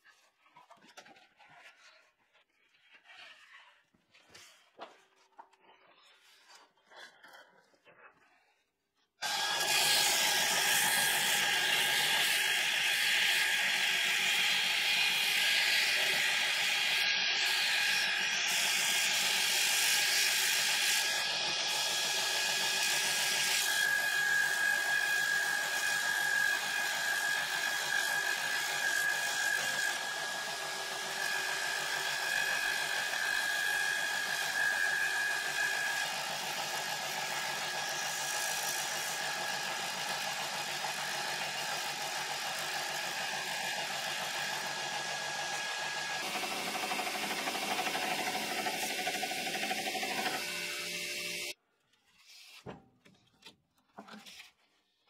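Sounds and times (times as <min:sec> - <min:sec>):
belt grinder grinding metal: 0:09.2 - 0:51.6.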